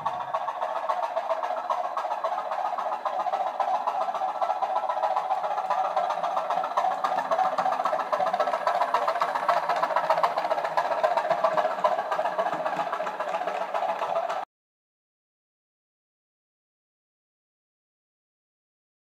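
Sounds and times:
model train diesel engine sound: 0.0s - 14.5s.

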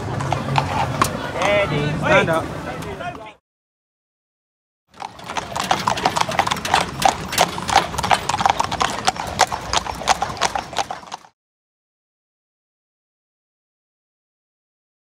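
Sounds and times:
horse hooves clip-clopping on pavement: 0.0s - 1.7s, 4.9s - 11.4s.

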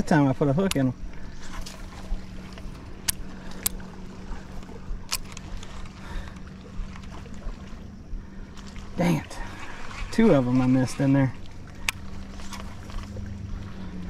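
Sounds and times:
low rumble: 0.0s - 14.0s
sharp clicks: 3.0s - 3.9s, 5.1s - 5.7s.

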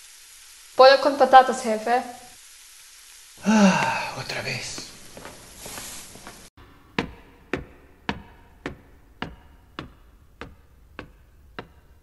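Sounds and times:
footsteps on wooden stairs: 4.8s - 12.0s.

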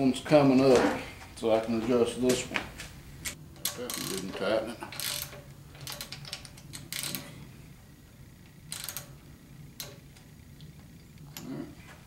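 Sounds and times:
ratchet wrench clicking: 3.6s - 4.3s, 4.9s - 7.3s, 8.7s - 9.2s.

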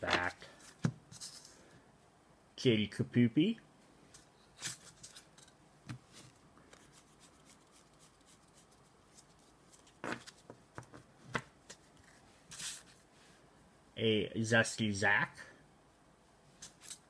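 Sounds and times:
playing cards clicking and tapping: 9.8s - 11.8s.

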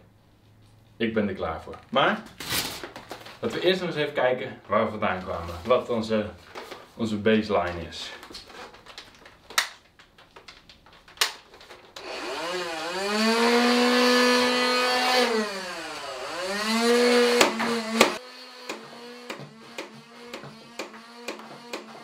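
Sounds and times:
toy blaster motor whirring: 12.0s - 22.0s.

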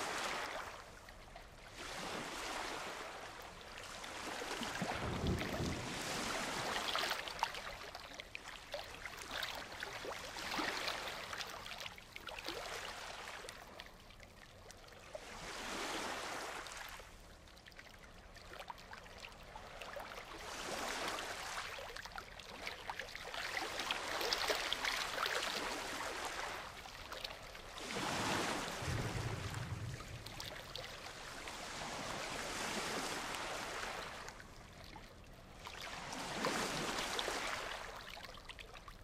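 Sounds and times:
waves breaking on beach: 0.0s - 13.8s, 15.2s - 17.1s, 19.6s - 38.1s
thunder rumble: 5.0s - 6.0s, 28.7s - 31.2s.

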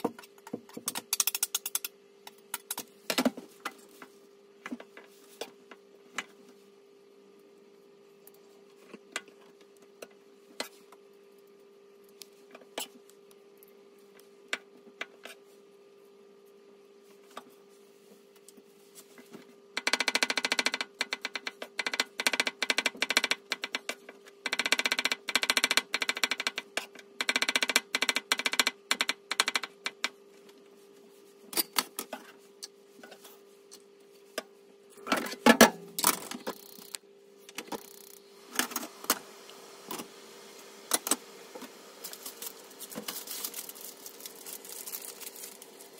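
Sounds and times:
steady hum: 29.9s - 45.9s.

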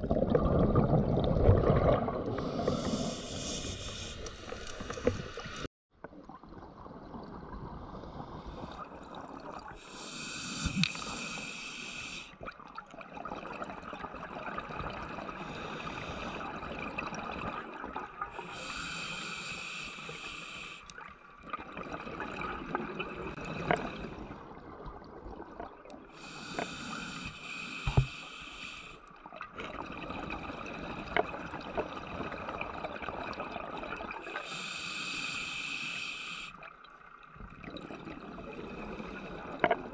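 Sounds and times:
bubbling and gurgling: 0.0s - 10.0s, 12.4s - 18.8s, 20.9s - 26.2s, 29.1s - 34.5s, 36.6s - 39.9s
diver breathing hiss: 2.4s - 5.6s, 9.8s - 12.4s, 18.4s - 20.9s, 26.2s - 29.0s, 34.3s - 36.6s.

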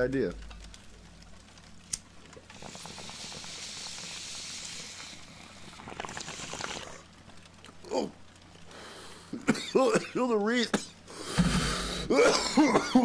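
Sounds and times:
rapid small pops: 0.0s - 8.7s
hissing inhale of smoke: 2.5s - 7.0s, 11.1s - 12.1s.

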